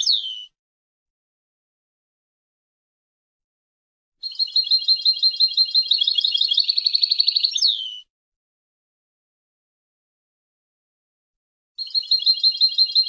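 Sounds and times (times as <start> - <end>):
goldfinch singing: 0.0 - 0.5, 4.2 - 8.0, 11.8 - 13.0.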